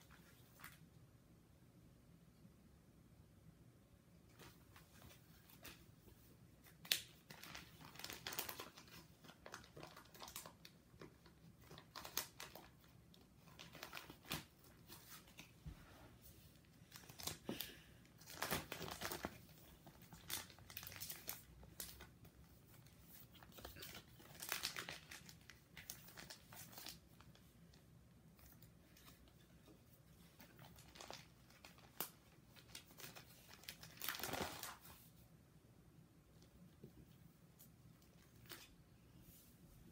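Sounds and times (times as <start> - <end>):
plastic sleeves crinkling: 4.3 - 15.8, 16.5 - 35.2, 36.4 - 39.5.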